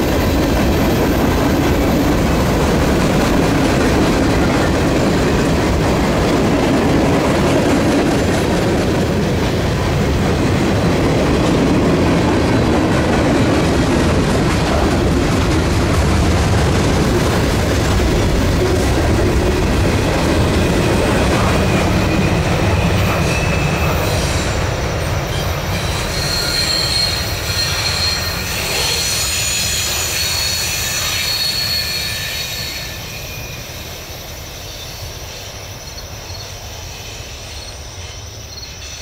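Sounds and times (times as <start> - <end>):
freight train rolling past: 0.0 - 39.0
high wheel squeal: 21.4 - 39.0.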